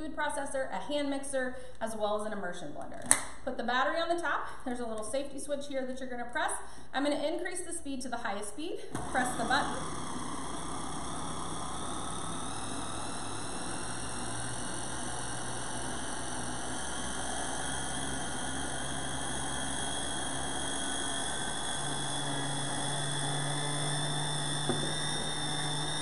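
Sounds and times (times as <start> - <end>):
small click: 3.0 - 3.4
food processor motor whine: 8.9 - 26.0.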